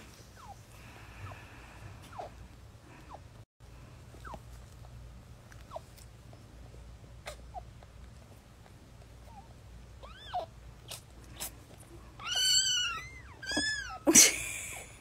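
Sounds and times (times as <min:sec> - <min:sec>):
newborn kittens squealing: 0:00.3 - 0:00.6, 0:02.0 - 0:02.4, 0:07.2 - 0:07.8, 0:09.2 - 0:14.1.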